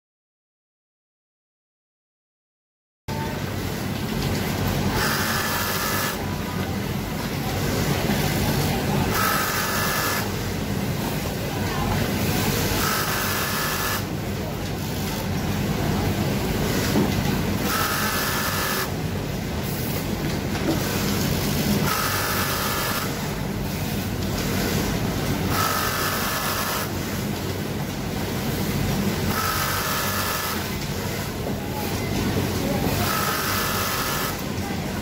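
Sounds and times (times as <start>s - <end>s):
low hum of machinery: 3.1s - 35.0s
sewing machine stitching: 4.9s - 6.2s, 12.7s - 14.1s, 21.8s - 23.2s, 25.5s - 27.0s, 29.3s - 30.7s, 33.0s - 34.5s.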